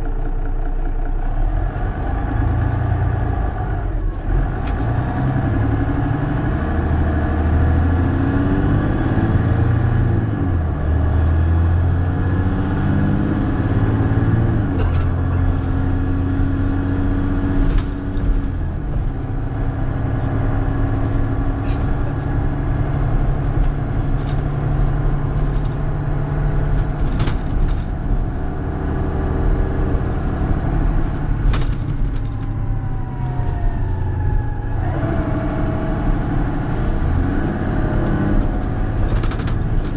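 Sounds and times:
bus diesel engine revving: 1.1 - 39.9
knocks and rattles from bus body: 14.6 - 16.0, 17.4 - 19.6, 21.0 - 32.6, 37.8 - 39.9.

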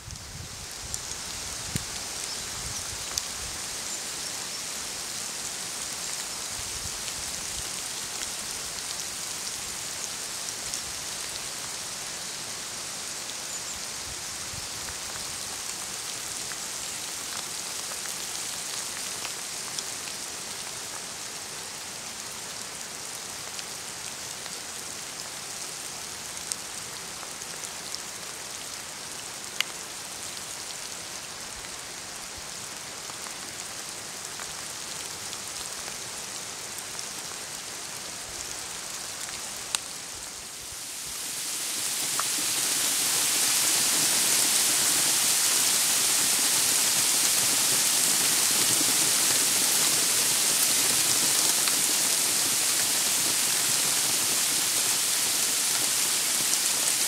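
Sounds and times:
rain hissing: 0.0 - 57.0
raindrops ticking close by: 41.4 - 55.8.

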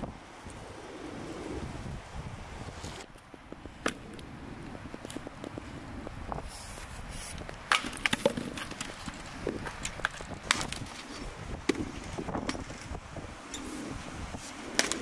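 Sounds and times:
axe chopping wood: 7.7 - 8.8, 14.8 - 15.0.

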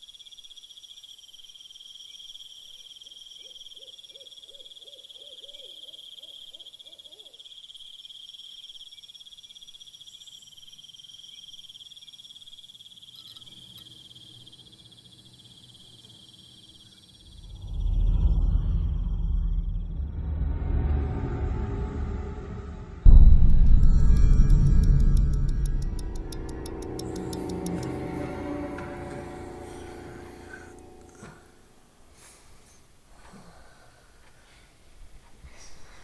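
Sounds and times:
crickets trilling: 0.0 - 19.6
low hum: 17.3 - 32.1
loud low rumble: 17.4 - 31.8.

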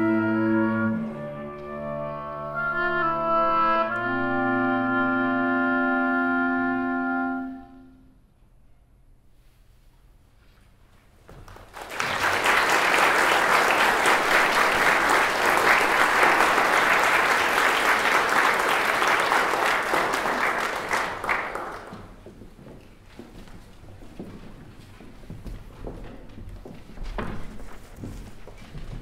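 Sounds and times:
audience applause: 11.4 - 22.2.

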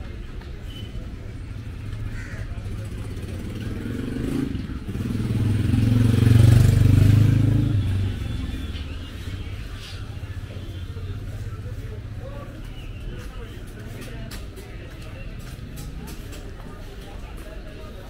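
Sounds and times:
motorcycle engine passing: 2.7 - 8.8.

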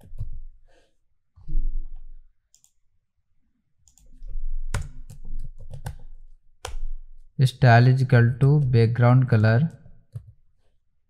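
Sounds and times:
computer keyboard and mouse clicks: 2.5 - 2.8, 3.8 - 6.9.

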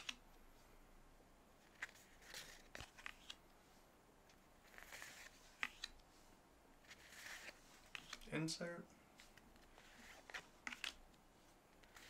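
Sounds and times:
cards sliding over cards: 1.6 - 3.4, 4.6 - 6.0, 6.8 - 8.3, 9.2 - 11.1, 11.8 - 12.0.

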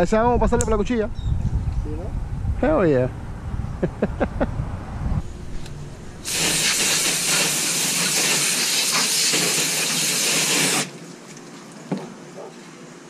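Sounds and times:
hose nozzle spraying water: 6.2 - 11.0.

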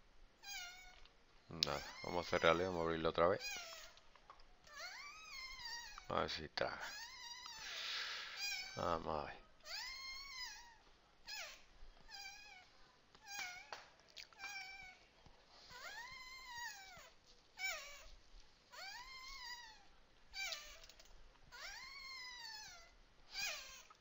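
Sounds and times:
cat meowing: 0.4 - 1.0, 3.4 - 4.0, 4.7 - 6.1, 9.6 - 12.6, 13.2 - 13.8, 14.4 - 15.0, 20.4 - 24.0.

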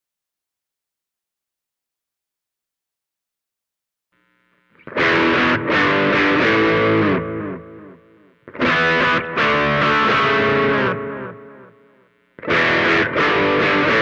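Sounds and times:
distorted electric guitar: 4.2 - 14.0.

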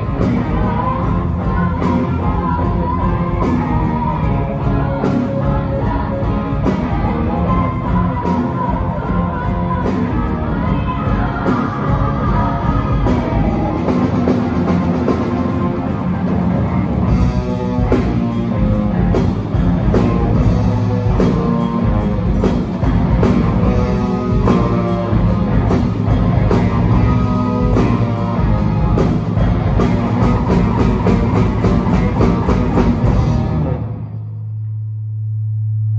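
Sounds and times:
electric guitars: 0.0 - 34.3.

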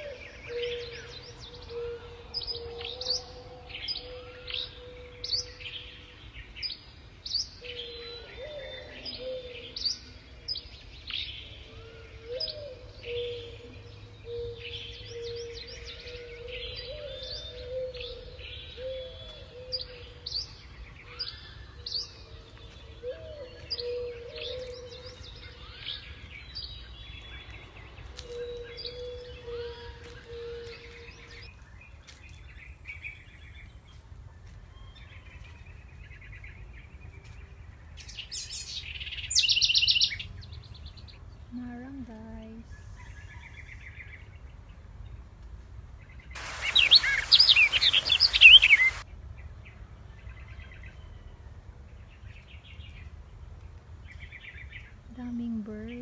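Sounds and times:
sharp high bird chirps: 46.4 - 49.0.

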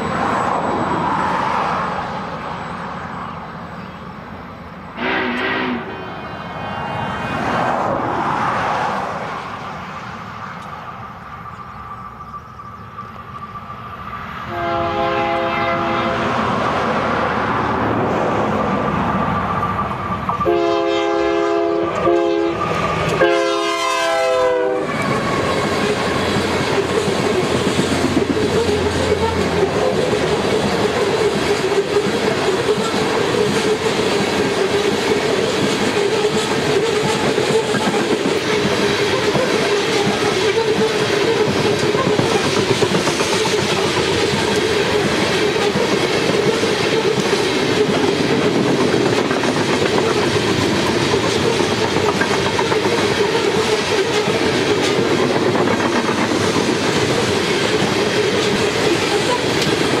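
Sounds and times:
freight train wheels clattering: 24.2 - 60.0.

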